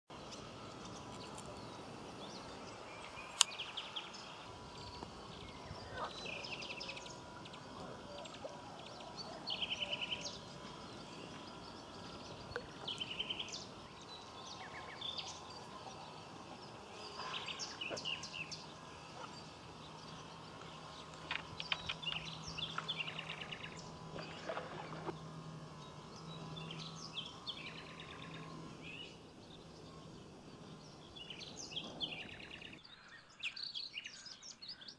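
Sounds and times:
birds singing and calling: 0.1 - 34.9
chirping trills: 0.1 - 34.9
steady outdoor hiss: 0.1 - 34.9
sharp click: 3.3 - 3.6.

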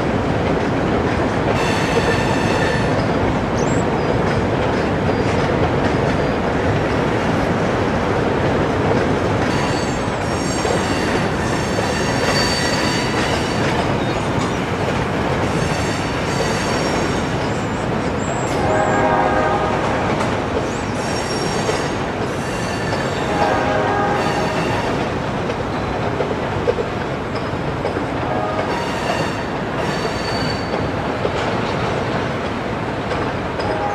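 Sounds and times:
freight train rumbling over bridge: 0.0 - 33.9
high-pitched wheel squeal: 9.5 - 14.2
locomotive horn: 18.5 - 20.3, 23.2 - 24.9, 28.2 - 29.5, 33.6 - 33.9.

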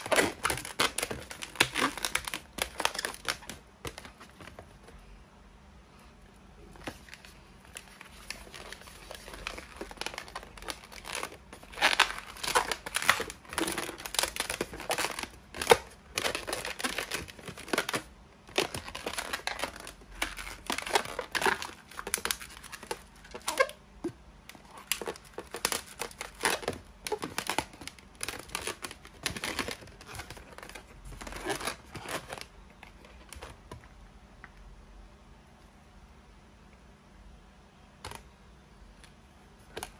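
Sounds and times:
balloons rubbing and squeaking: 0.0 - 3.5, 8.2 - 23.8, 24.6 - 32.4.

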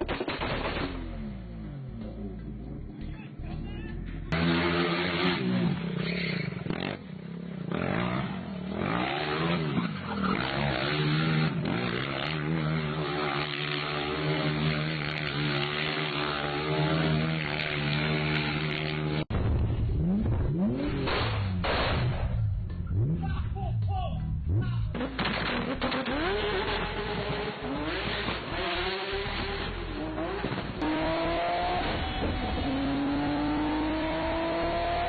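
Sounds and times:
car engine revving: 0.0 - 35.0
go-kart engine revving: 0.3 - 21.9, 22.5 - 23.3, 24.4 - 35.0.

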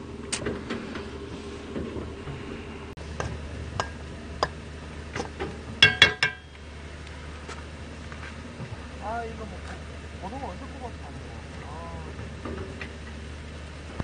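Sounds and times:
utensil clinking on metal cookware: 5.8 - 6.6.

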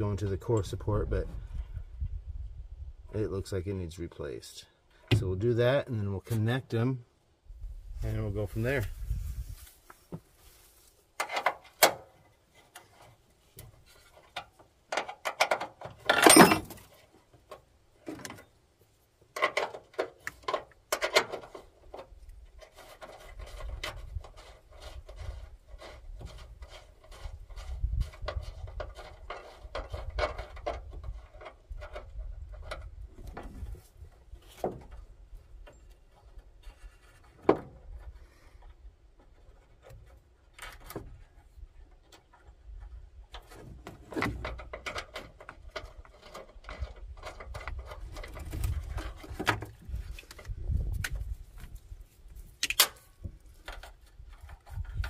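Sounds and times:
tools clicking and rattling: 14.1 - 16.9.

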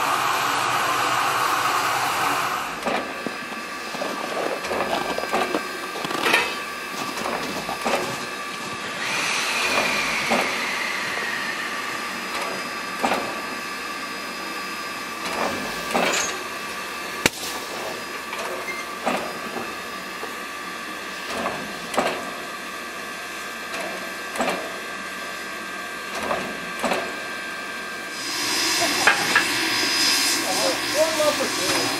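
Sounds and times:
steam hissing: 0.0 - 5.9, 6.5 - 13.7, 28.0 - 31.9
steam puffs: 0.0 - 12.1, 28.1 - 31.9.

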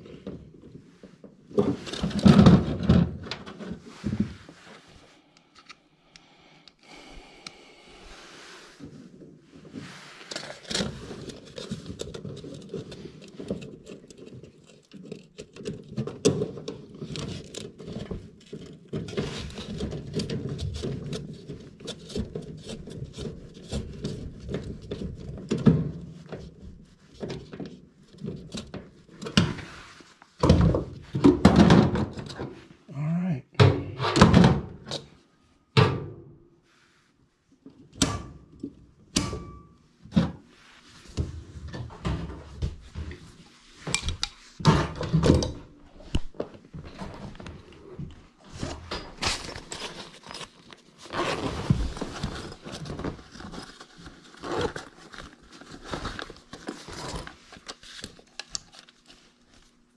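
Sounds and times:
tools scraping and clicking on wiring: 10.2 - 25.6, 43.8 - 46.4, 55.9 - 59.8.

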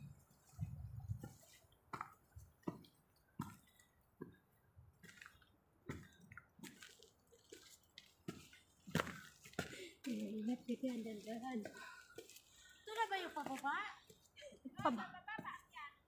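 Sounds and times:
footsteps on dirt trail: 0.0 - 4.4, 5.0 - 15.7
brushing through shrubs: 7.0 - 13.8.

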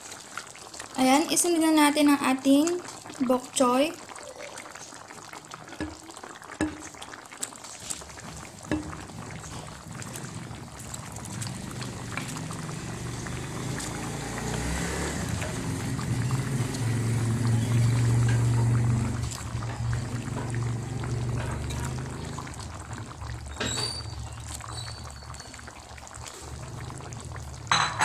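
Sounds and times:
stew bubbling in a pot: 0.0 - 28.0.

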